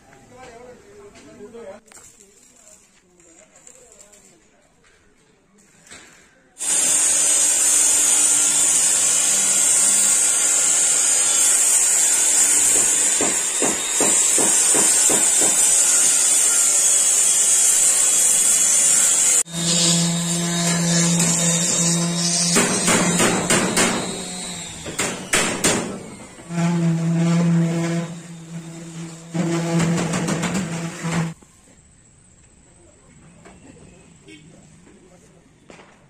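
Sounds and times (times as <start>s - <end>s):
rotary sander on sheet metal: 6.6s - 31.4s.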